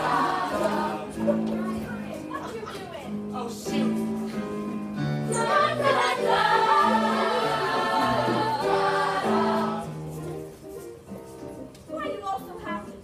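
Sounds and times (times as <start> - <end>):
young voices singing together: 0.0 - 2.7, 5.2 - 10.1
recorded musical accompaniment: 0.0 - 13.0.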